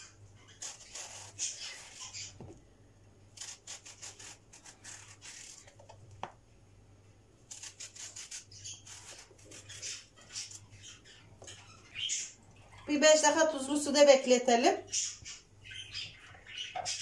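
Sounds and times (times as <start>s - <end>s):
knife slicing eggplant: 0.5s - 2.5s, 3.3s - 6.0s, 7.5s - 10.7s.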